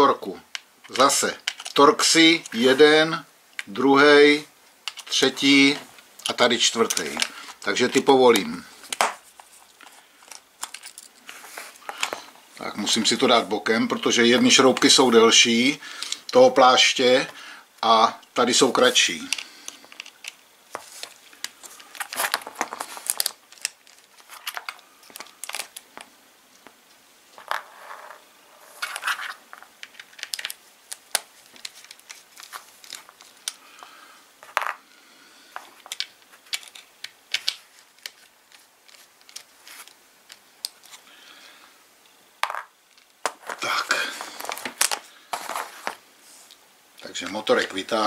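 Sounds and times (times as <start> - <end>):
plastic parts being handled: 0.5 - 3.8, 4.7 - 17.4, 18.1 - 34.8, 35.5 - 41.2, 42.4 - 48.0.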